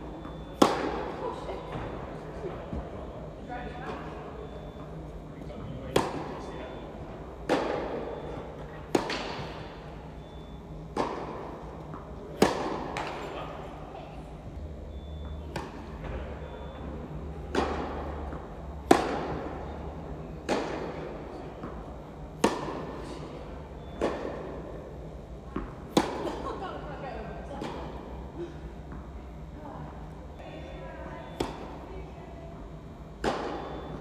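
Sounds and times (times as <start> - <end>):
tennis ball hit by rackets: 0.2 - 1.0, 5.9 - 6.3, 7.4 - 8.0, 8.9 - 9.6, 10.9 - 11.4, 12.4 - 13.2, 17.5 - 19.6, 20.4 - 21.0, 22.4 - 23.0, 25.5 - 26.4, 31.3 - 31.8, 33.2 - 34.0.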